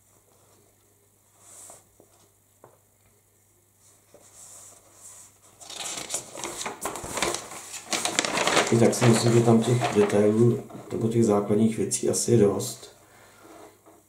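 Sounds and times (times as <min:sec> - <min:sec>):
paper rustling and crackling: 0:04.1 - 0:11.4.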